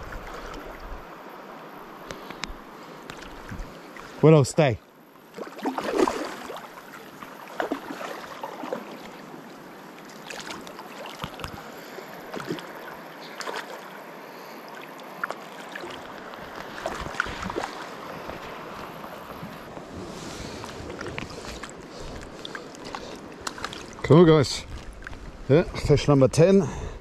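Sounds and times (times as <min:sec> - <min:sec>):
small water splashes: 0:00.0 - 0:01.1, 0:05.2 - 0:19.7, 0:20.4 - 0:25.4
river water running: 0:00.0 - 0:27.0.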